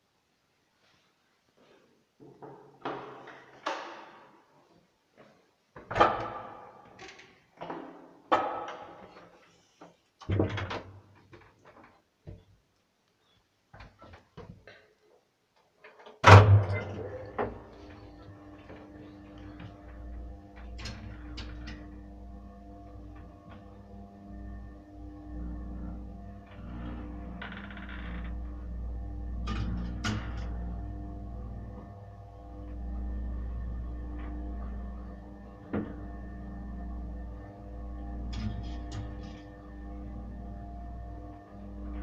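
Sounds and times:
steady hum with low drone: 16.5s - 42.0s.

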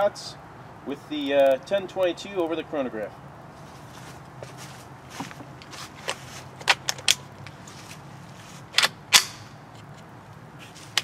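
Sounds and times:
rifle metallic clicks: 8.7s - 10.1s.

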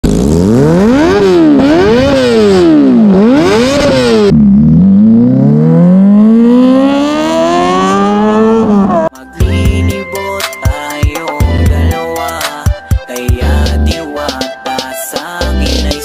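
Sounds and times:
motorcycle accelerating away: 0.0s - 9.1s
motorcycle engine revving: 0.0s - 9.1s.

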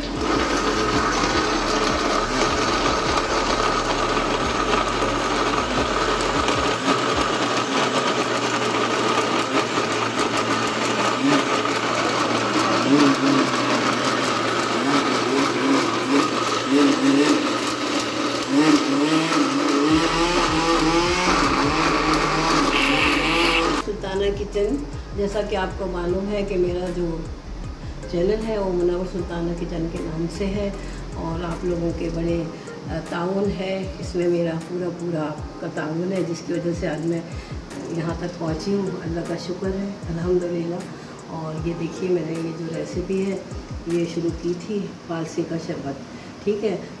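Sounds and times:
blender running: 0.0s - 24.1s.

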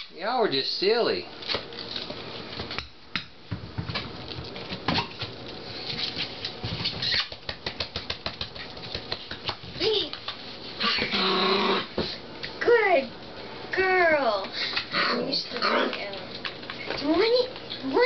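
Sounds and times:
puppy paws clicking and tapping: 1.4s - 10.5s, 15.5s - 18.0s.

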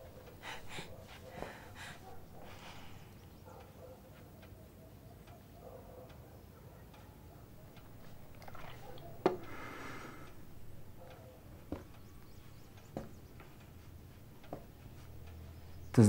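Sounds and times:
breathy rustle: 0.0s - 3.2s
clock ticking: 9.1s - 16.0s.

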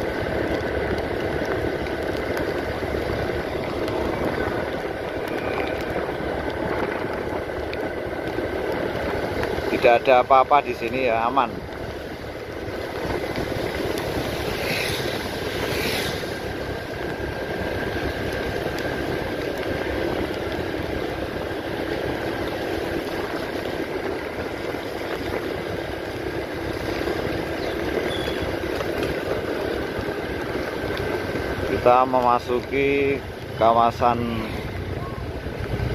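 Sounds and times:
faint engine hum: 0.0s - 35.9s
vehicle road noise: 0.0s - 35.9s
brief hissing sweeps: 15.6s - 16.3s.

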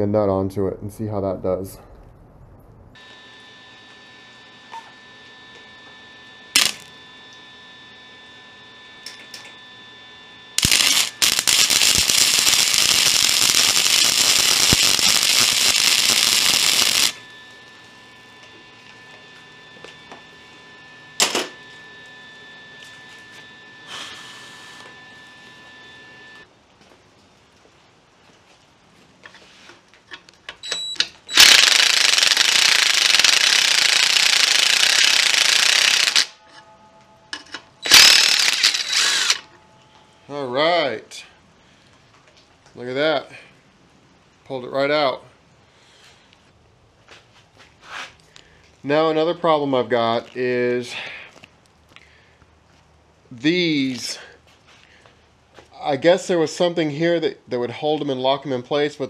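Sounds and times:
welder arc crackling: 6.5s - 7.5s, 10.5s - 26.5s, 29.8s - 36.4s, 37.8s - 39.6s.

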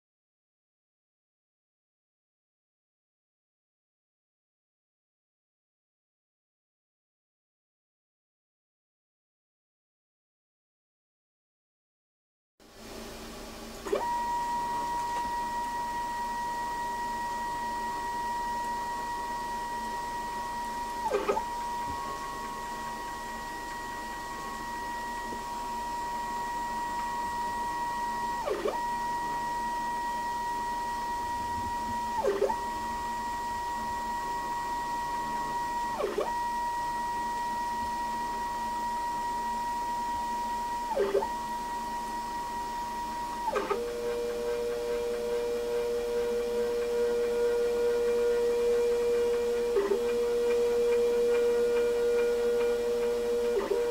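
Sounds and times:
stepper motor whining: 13.8s - 53.9s.

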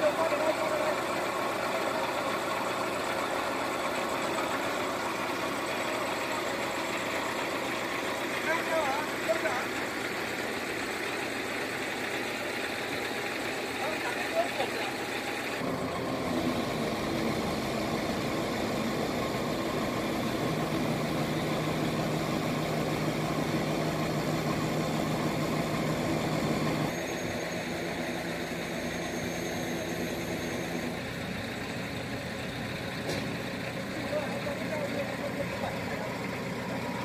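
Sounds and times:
truck engine running: 0.0s - 37.0s.

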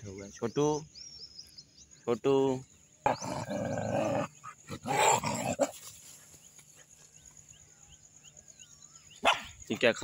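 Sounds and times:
puppies growling: 3.0s - 5.9s.

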